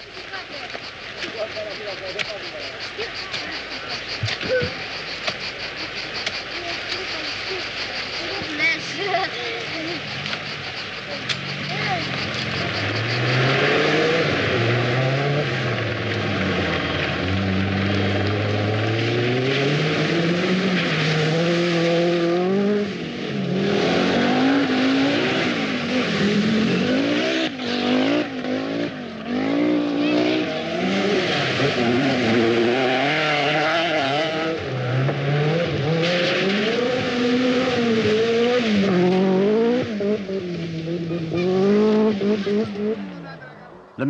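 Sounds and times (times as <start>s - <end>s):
tyres on gravel: 0.0s - 23.0s
rally car engine revving: 0.0s - 44.0s.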